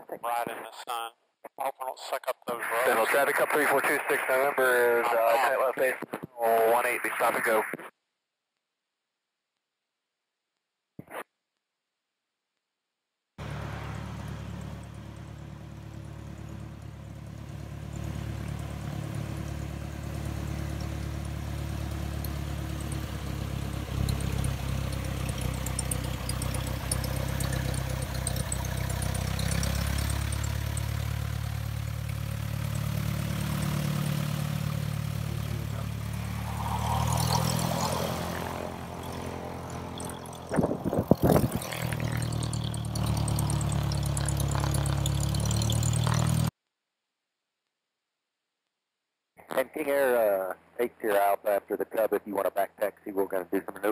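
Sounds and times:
propeller plane engine running: 0:13.4 - 0:46.5.

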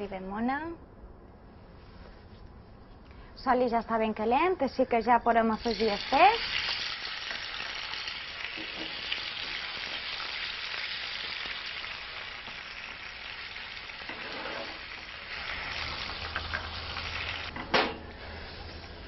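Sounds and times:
fish frying in hot oil: 0:05.6 - 0:17.5.

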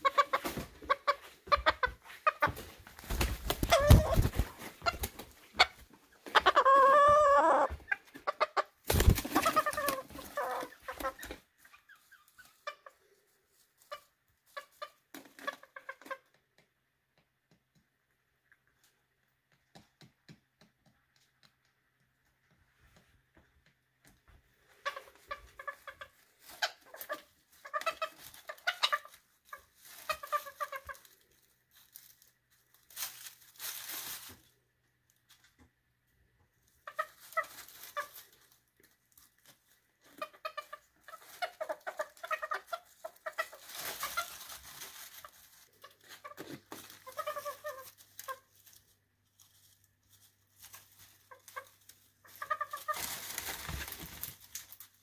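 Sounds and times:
chickens clucking: 0:00.0 - 0:16.4, 0:24.6 - 0:31.3, 0:36.8 - 0:38.5, 0:40.0 - 0:48.8, 0:50.7 - 0:53.9.

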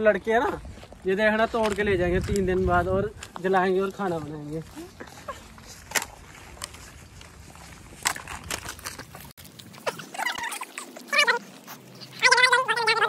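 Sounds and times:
wavering animal calls: 0:09.7 - 0:13.0.

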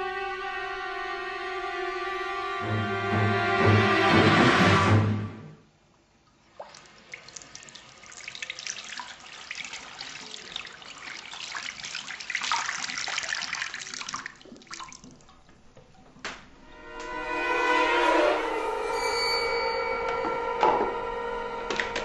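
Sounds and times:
tap water splashing into basin: 0:06.3 - 0:16.5.

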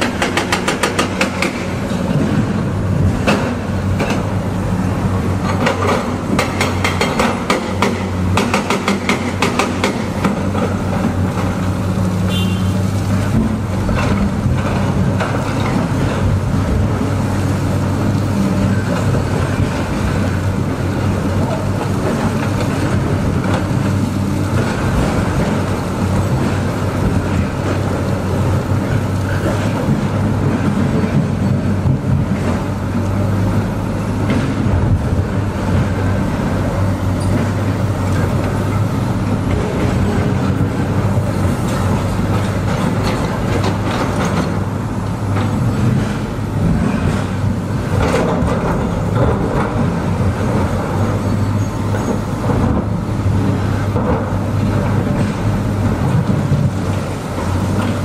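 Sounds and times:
sharp knocks and clanks: 0:00.0 - 0:02.6, 0:05.4 - 0:11.6
heavy machinery engine drone: 0:00.0 - 0:58.0.

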